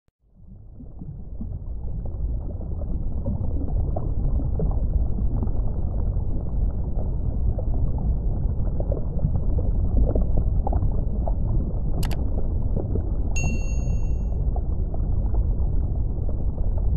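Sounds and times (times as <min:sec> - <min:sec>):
muffled underwater rumble: 0:00.2 - 0:16.9
short high blips: 0:13.4 - 0:14.2.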